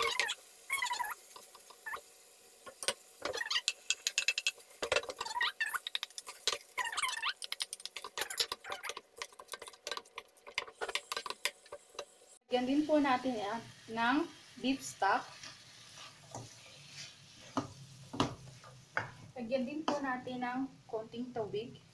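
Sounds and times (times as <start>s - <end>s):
wooden spoon stirring in a wok: 0.0s - 12.2s, 13.7s - 20.3s
squeaky scrapes: 6.8s - 7.4s, 8.1s - 9.0s.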